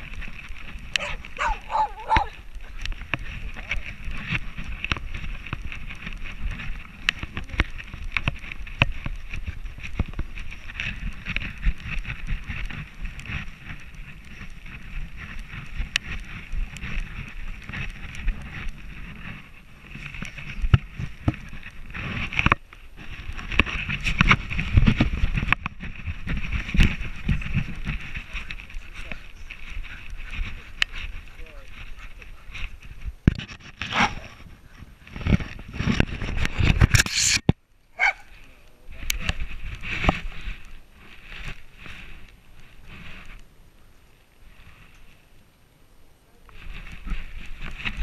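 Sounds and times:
camera handling rumble: 0:00.0 - 0:37.6
wind on microphone: 0:00.0 - 0:43.8, 0:46.1 - 0:48.0.

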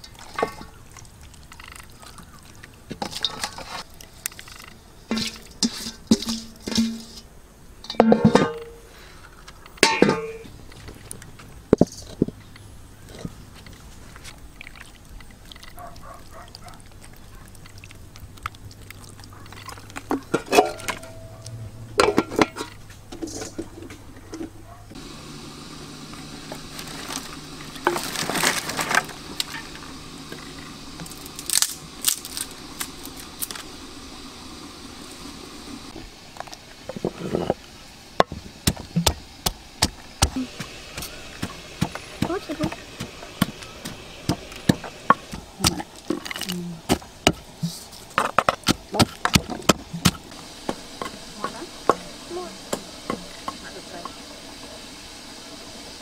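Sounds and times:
low steady hum: 0:00.0 - 0:56.0
pestle pounding in wooden mortar: 0:38.2 - 0:46.2, 0:46.9 - 0:47.5, 0:48.2 - 0:50.3.

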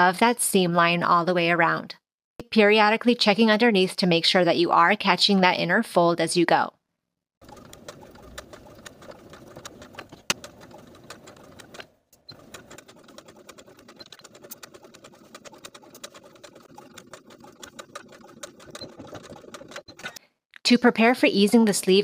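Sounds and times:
sewing machine stitching: 0:07.4 - 0:20.2.

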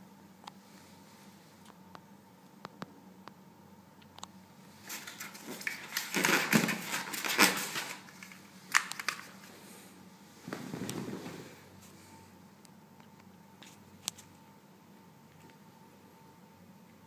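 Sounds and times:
foam and cardboard rustling: 0:04.8 - 0:08.4.

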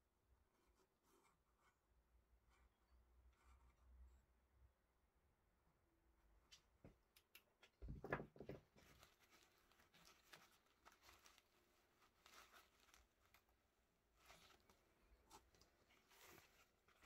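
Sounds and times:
nylon sheath rustling and scraping: 0:08.7 - 0:17.0.

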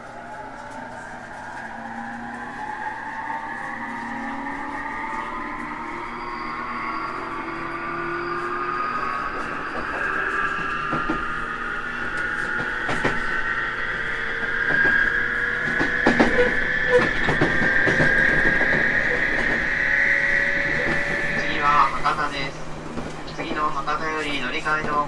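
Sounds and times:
electric train motor whistling: 0:03.0 - 0:22.0.

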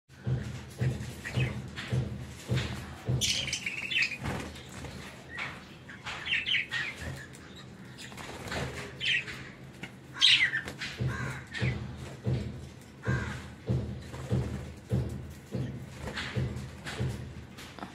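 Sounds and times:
budgerigars chirping and squawking: 0:00.5 - 0:12.4.

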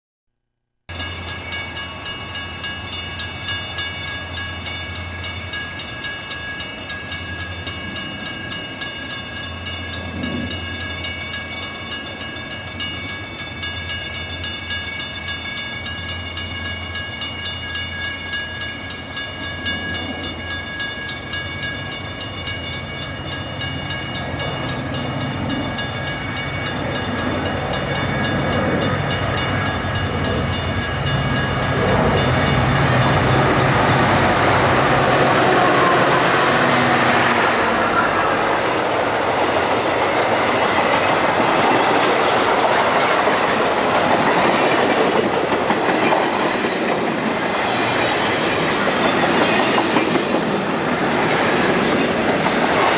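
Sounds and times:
crossing warning bell ringing: 0:00.9 - 0:50.9
train rumble: 0:00.9 - 0:52.9.

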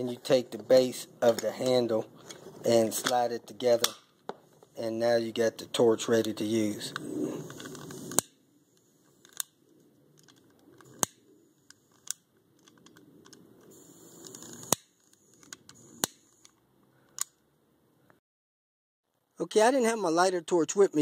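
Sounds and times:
faint handling noise: 0:00.0 - 0:04.8.

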